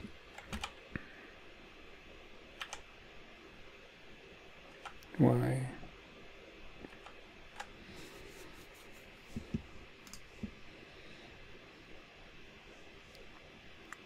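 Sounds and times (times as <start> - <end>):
faint room hiss: 0.0 - 14.0
computer clicks: 0.3 - 0.8, 2.6 - 2.9, 4.7 - 5.1, 10.0 - 10.3.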